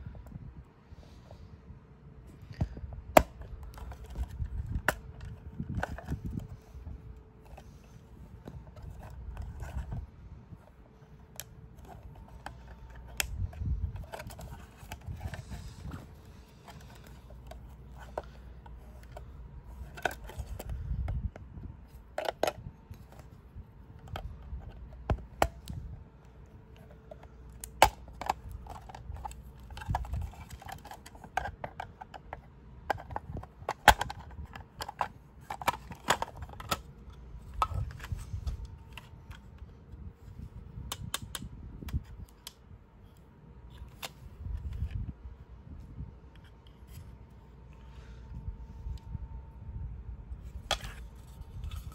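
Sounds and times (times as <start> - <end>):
hard plastic clicks and scrapes: 2.6 - 45.1, 50.5 - 51.9
handling rustle: 3.2 - 40.6.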